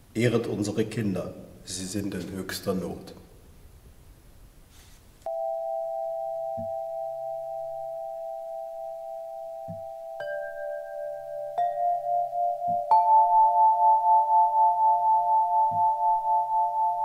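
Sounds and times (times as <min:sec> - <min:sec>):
glass tube chimes ringing: 0:05.3 - 0:17.0.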